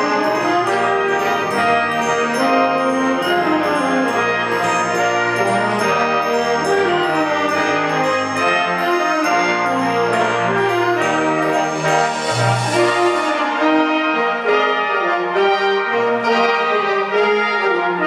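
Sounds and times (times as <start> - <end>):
high shimmer: 0.0 - 13.8
concert wind band playing chords: 0.0 - 18.0.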